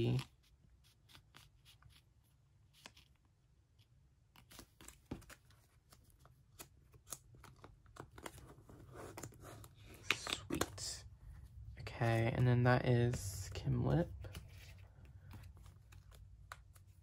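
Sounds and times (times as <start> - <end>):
card rustling in plastic sleeve: 0.0 - 12.5, 14.1 - 17.0
low room hum: 0.0 - 17.0.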